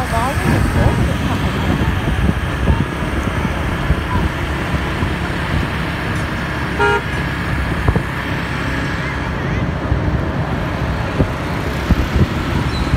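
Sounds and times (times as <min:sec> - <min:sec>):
traffic rumble: 0:00.0 - 0:12.9
car horn toot: 0:06.7 - 0:07.2.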